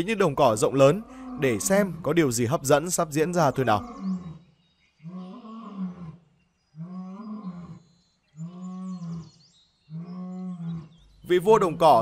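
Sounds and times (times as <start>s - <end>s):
lion roaring: 0.6s - 2.3s, 3.4s - 4.5s.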